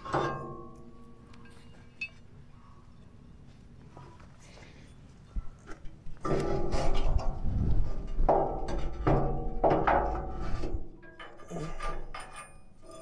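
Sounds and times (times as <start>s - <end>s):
metal clanks with ringing: 0.0s - 2.3s, 11.0s - 13.0s.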